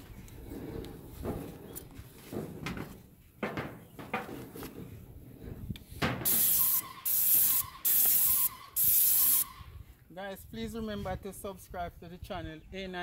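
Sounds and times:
paint spray gun hissing: 0:06.2 - 0:09.6.

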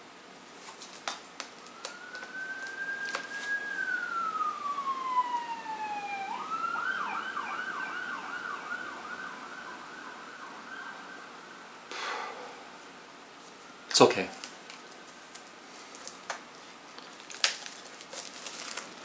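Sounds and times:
emergency vehicle siren: 0:01.5 - 0:11.8, 0:13.5 - 0:13.9.

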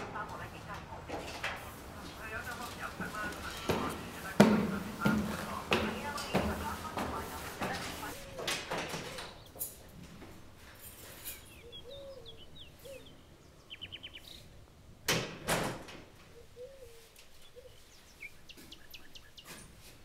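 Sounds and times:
small birds chirping: 0:02.0 - 0:09.8, 0:11.1 - 0:14.6, 0:16.3 - 0:20.0
loud sharp knocks: 0:03.6 - 0:08.1
low cooing call: 0:08.1 - 0:09.4, 0:11.6 - 0:13.3, 0:16.3 - 0:17.9
bird trill: 0:11.2 - 0:14.4.

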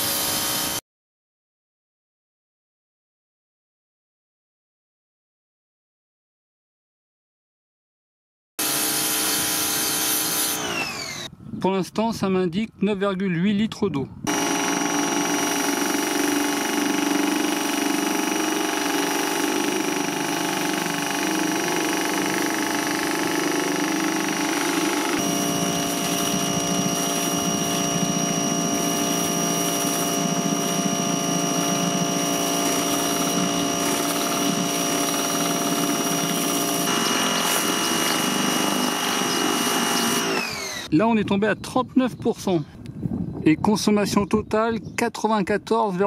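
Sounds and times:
pressure washer running: 0:00.0 - 0:00.8, 0:08.6 - 0:11.3, 0:14.3 - 0:40.9.

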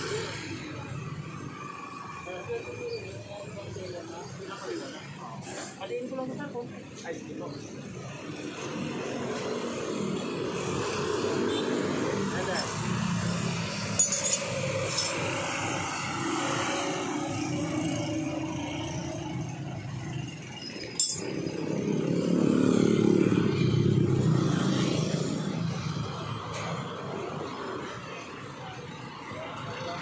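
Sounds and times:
street traffic passing: 0:00.0 - 0:30.0
hand tools clinking: 0:13.9 - 0:15.4, 0:20.6 - 0:21.5.

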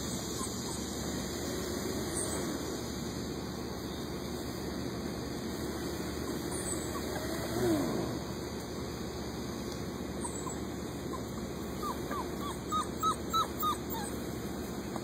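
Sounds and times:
puppy whimpering: 0:00.3 - 0:00.9, 0:06.3 - 0:08.0, 0:10.2 - 0:14.3.

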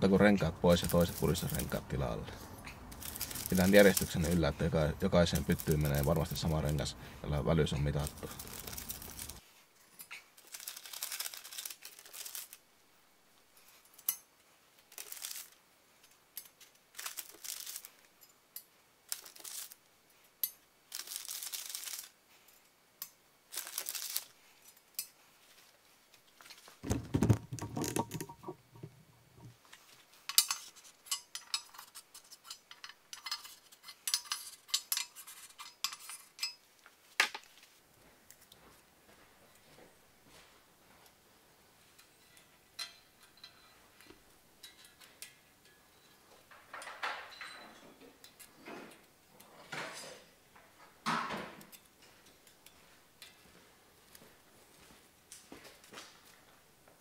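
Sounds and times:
paper packets rustling: 0:00.6 - 0:09.5, 0:10.4 - 0:12.6, 0:14.9 - 0:15.6, 0:16.9 - 0:18.0, 0:19.1 - 0:19.8, 0:20.9 - 0:22.2, 0:23.5 - 0:24.3
metal rings clicking: 0:02.6 - 0:04.3, 0:08.0 - 0:09.4, 0:27.2 - 0:29.5.

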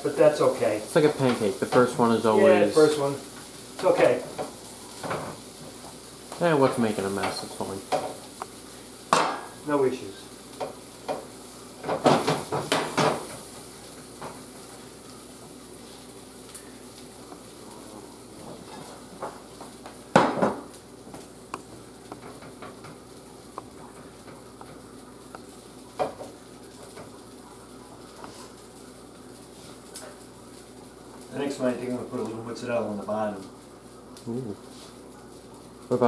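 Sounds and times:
faint sizzle in skillet: 0:00.0 - 0:36.0.

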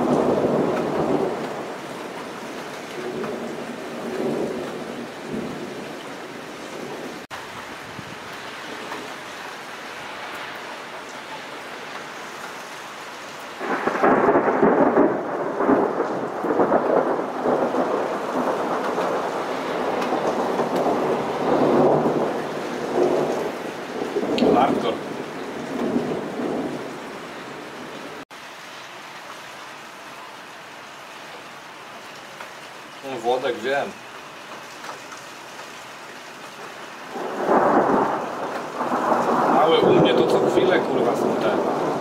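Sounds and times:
thunder rumbling: 0:00.0 - 0:05.9, 0:13.6 - 0:28.2, 0:37.1 - 0:42.0
rain hissing: 0:00.0 - 0:42.0.

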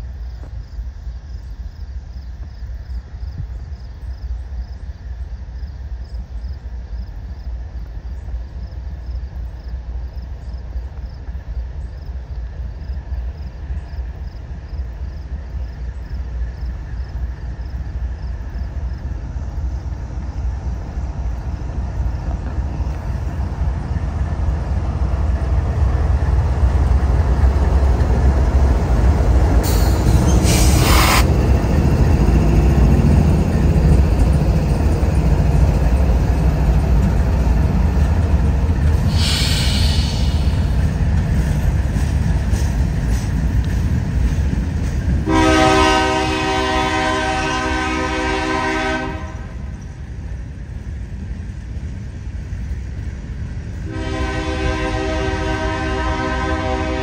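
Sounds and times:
diesel locomotives rumbling: 0:00.0 - 0:57.0
short high-pitched hisses: 0:29.6 - 0:31.3, 0:39.0 - 0:40.8.

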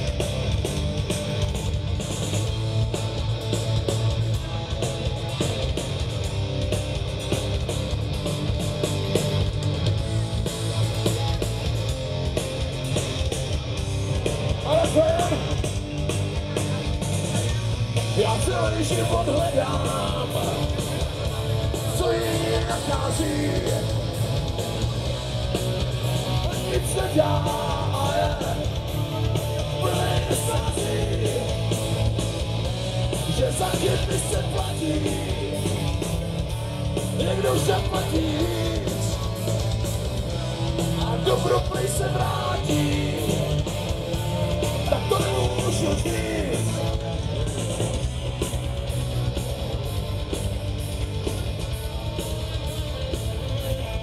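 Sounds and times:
live rock band: 0:00.0 - 0:54.0
man singing and shouting: 0:14.5 - 0:15.7, 0:17.4 - 0:24.1, 0:26.4 - 0:31.7, 0:33.2 - 0:36.0, 0:37.1 - 0:39.4, 0:40.9 - 0:43.6, 0:44.7 - 0:47.2.

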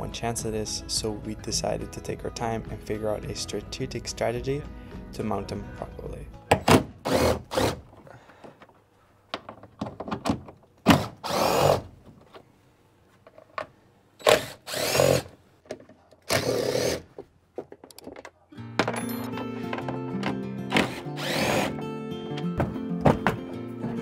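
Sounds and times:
power drill whining: 0:11.2 - 0:11.8, 0:14.2 - 0:15.3, 0:16.3 - 0:17.0, 0:20.7 - 0:21.9
clicks and knocks: 0:17.2 - 0:20.9.

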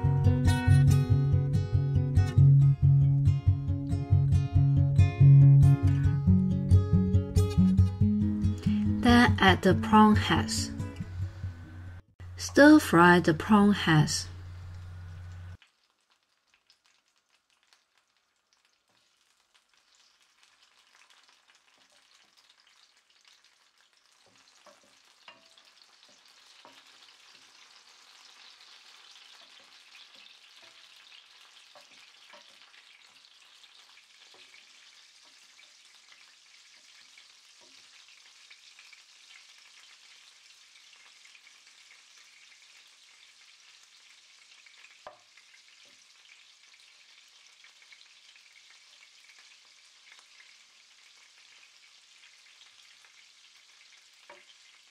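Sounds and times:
prawn heads sizzling in oil: 0:14.2 - 0:54.9
spatula tapping and scraping pan: 0:24.3 - 0:25.7, 0:31.7 - 0:32.6.

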